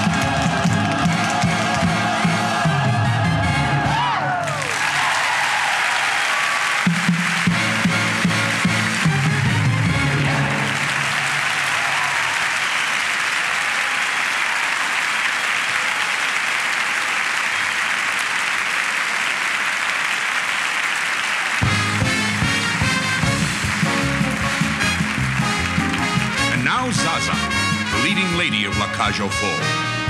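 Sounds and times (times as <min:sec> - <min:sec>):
music: 0:00.0 - 0:05.0, 0:06.6 - 0:11.6, 0:21.6 - 0:30.0
audience applauding: 0:00.0 - 0:29.6.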